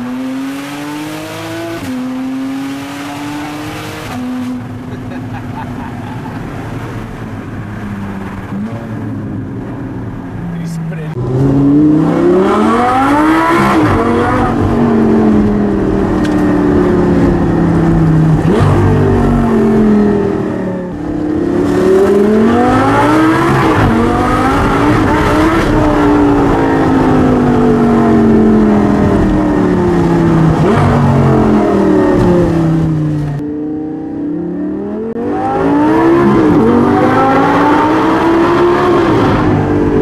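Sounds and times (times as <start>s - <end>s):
car engine revving: 0.0s - 40.0s.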